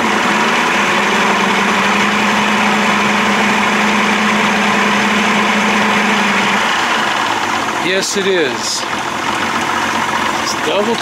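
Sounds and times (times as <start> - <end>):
outboard motor running: 0.0 - 11.0.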